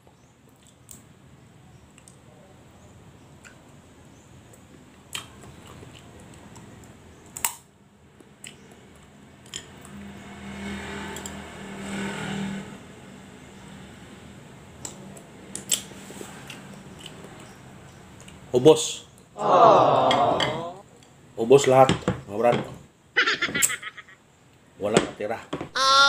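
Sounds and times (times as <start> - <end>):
chewing: 5.1 - 6.6.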